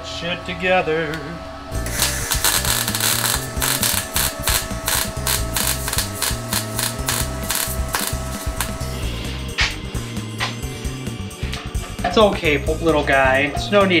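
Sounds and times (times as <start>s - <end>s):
music with steady beat: 1.7s - 14.0s
arc welding crackle: 1.8s - 9.0s.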